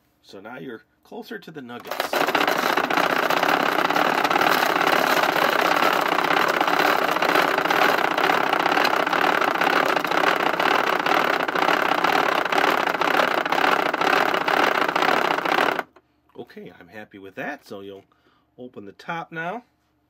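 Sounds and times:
toy grinder grinding cereal: 1.8 - 16.0.

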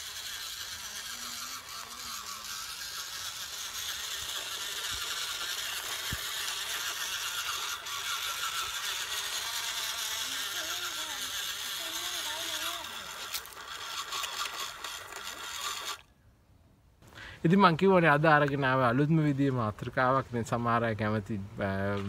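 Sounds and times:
small electric motors whirring: 0.0 - 16.1, 21.6 - 22.0.

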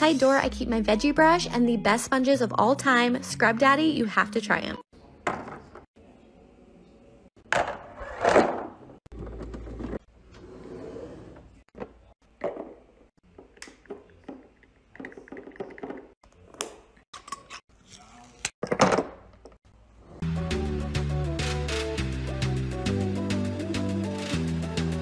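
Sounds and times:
kitchen containers knocking and clinking: 5.2 - 5.9, 11.4 - 16.2, 18.6 - 19.6.

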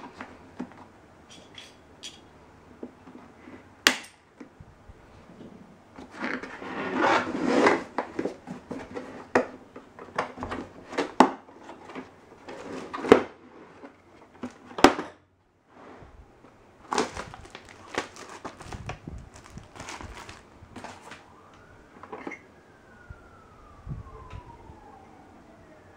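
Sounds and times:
plastic bag crinkling: 16.8 - 21.2.

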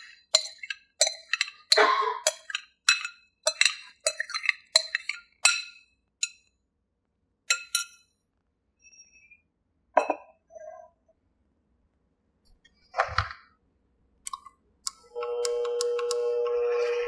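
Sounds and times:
spoon clinking against a bowl: 0.0 - 6.5, 7.5 - 8.1.

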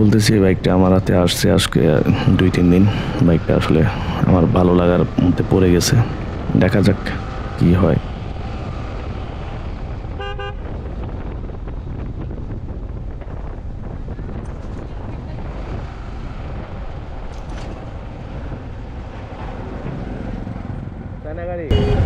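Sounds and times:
motorcycle engine and wind roar: 0.0 - 22.0
vehicle horn toot: 10.2 - 10.7, 21.7 - 22.0.

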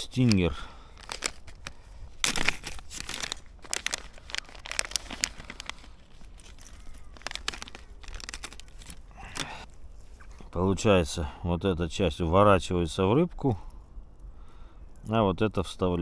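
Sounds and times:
fishing tackle crinkling: 0.0 - 10.5.

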